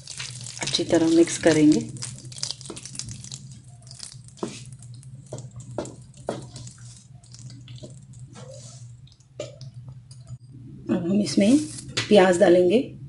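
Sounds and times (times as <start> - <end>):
wooden spoon stirring thick porridge: 0.0 - 9.7.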